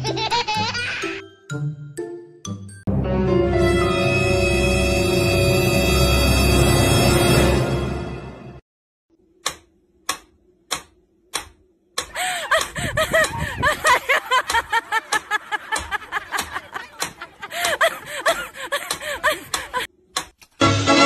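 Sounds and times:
metronome ticking: 9.4s - 13.4s, 14.4s - 17.9s.

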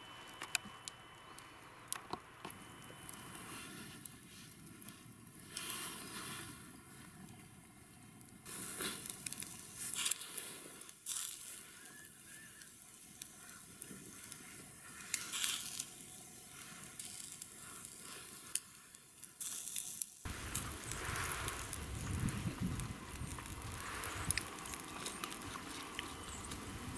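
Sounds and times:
fat crackling and popping: 0.0s - 26.9s
meat sizzling on charcoal grill: 8.4s - 26.9s.

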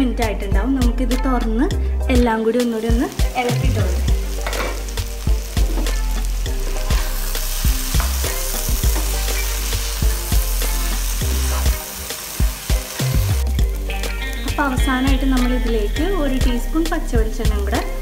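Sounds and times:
food sizzling in a frying pan: 2.7s - 18.0s
spatula knocking and scraping pan: 8.0s - 9.3s.

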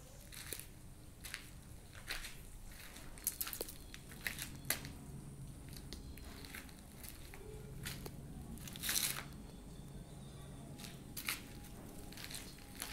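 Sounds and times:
footsteps crunching on gritty concrete: 0.3s - 5.0s, 10.8s - 12.9s.

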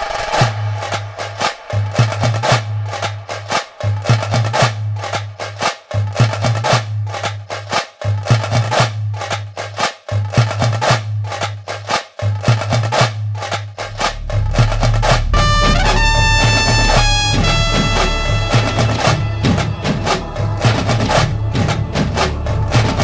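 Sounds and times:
fast percussion: 0.0s - 23.0s
low bass note: 13.8s - 20.6s.

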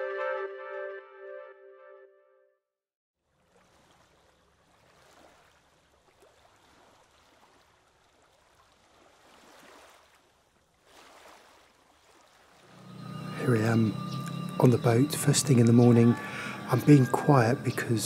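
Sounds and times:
brass music: 0.0s - 2.5s, 12.7s - 18.0s
small waves washing in: 3.2s - 18.0s.

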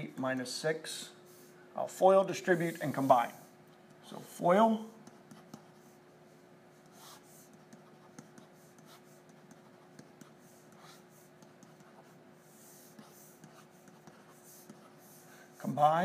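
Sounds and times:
steady low hum: 0.0s - 16.0s
stylus scratching on tablet: 2.2s - 3.5s, 4.1s - 16.0s.

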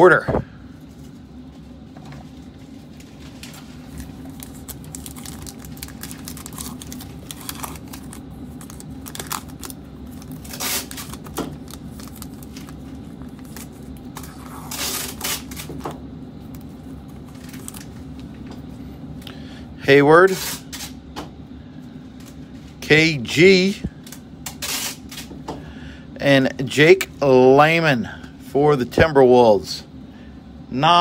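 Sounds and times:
foil pack crinkling and tearing: 2.9s - 15.9s, 16.5s - 18.3s, 24.1s - 25.3s.

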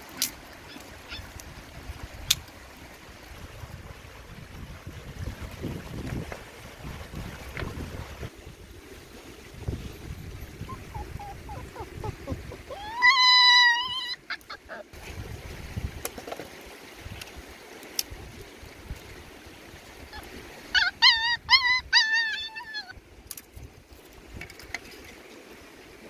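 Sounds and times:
puppy whining: 10.6s - 14.9s, 20.2s - 22.9s
puppy yelping whimpers: 10.6s - 15.0s, 20.2s - 22.9s.

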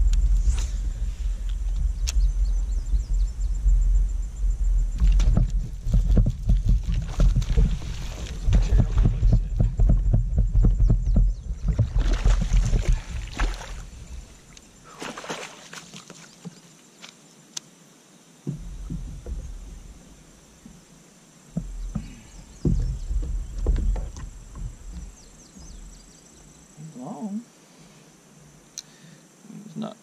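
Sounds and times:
thumps and knocks against kayak: 4.9s - 14.2s, 18.4s - 20.9s, 21.5s - 26.1s
fish splashing at surface: 14.9s - 16.3s.

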